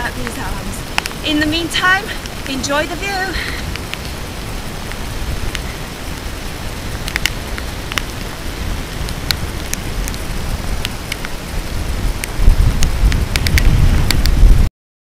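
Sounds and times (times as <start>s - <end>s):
rain spattering: 0.0s - 14.7s
wind buffeting microphone: 0.0s - 14.7s
drops ticking on camera: 0.1s - 4.2s, 7.0s - 8.3s, 12.1s - 14.5s.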